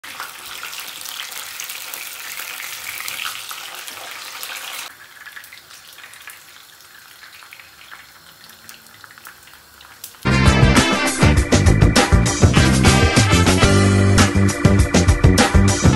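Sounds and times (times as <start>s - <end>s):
fish sizzling in hot oil: 0.0s - 10.3s
music with a beat: 10.3s - 15.9s.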